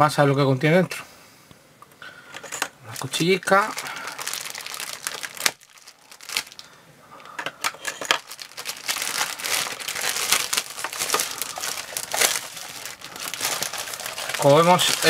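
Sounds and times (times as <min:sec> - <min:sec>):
plastic wrap crinkling and tearing: 0:02.9 - 0:06.7, 0:07.6 - 0:15.0.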